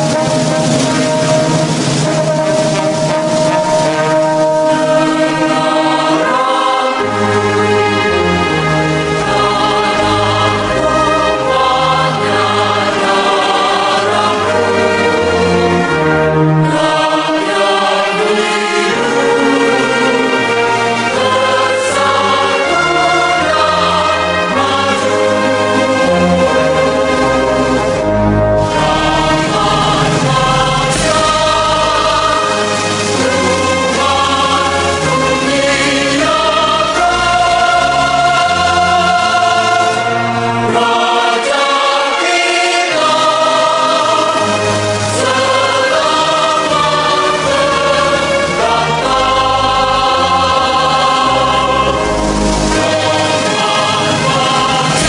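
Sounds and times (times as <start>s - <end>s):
choir singing held chords: 0.0s - 55.0s
orchestral music: 0.0s - 55.0s
slow bass line: 26.2s - 32.7s.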